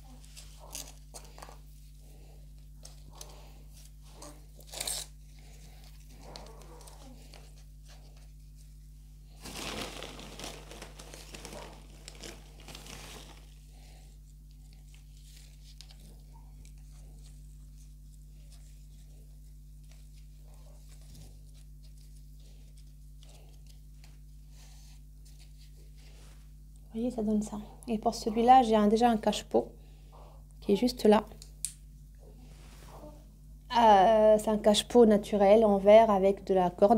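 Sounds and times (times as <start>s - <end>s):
steady low hum: 0.0s - 36.9s
plastic bag crinkling: 9.3s - 14.0s.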